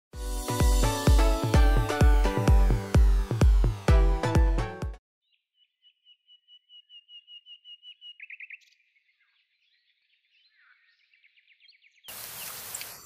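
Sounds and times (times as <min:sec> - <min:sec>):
songbird singing faintly: 0:05.2 - 0:13.0.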